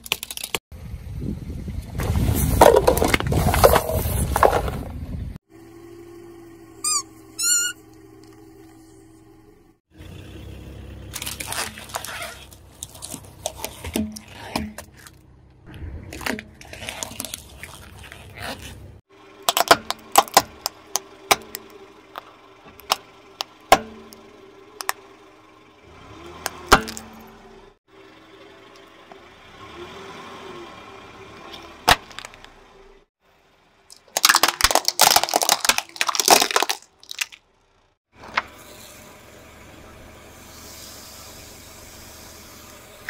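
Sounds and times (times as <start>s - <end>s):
plastic syringes crackling and crunching: 16.1s - 18.7s, 33.9s - 37.4s.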